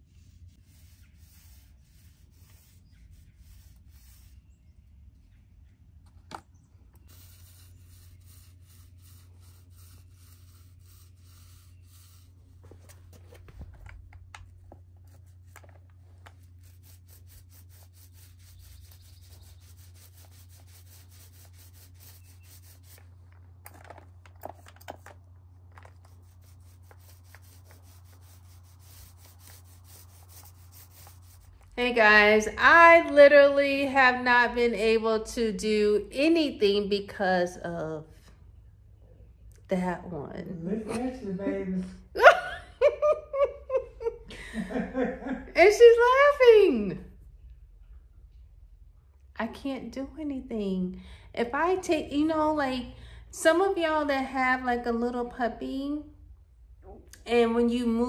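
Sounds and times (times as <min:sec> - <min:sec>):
paint roller rubbing on block: 0:00.0 - 0:04.6, 0:07.0 - 0:23.4, 0:25.7 - 0:31.8
steady low hum: 0:00.0 - 0:45.9.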